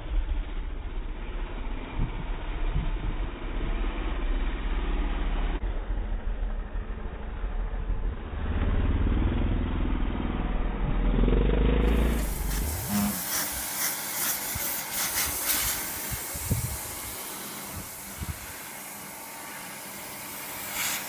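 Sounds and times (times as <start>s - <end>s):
dirt bike engine revving: 8.2s - 13.7s.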